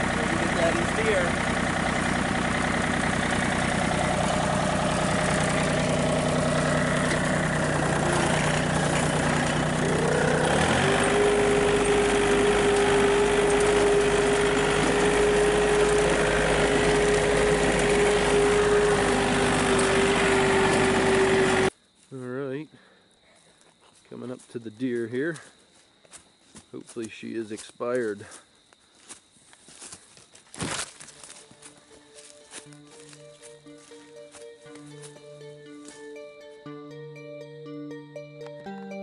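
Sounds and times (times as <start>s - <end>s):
farm vehicle engine running: 0.0s - 21.8s, 29.6s - 36.6s.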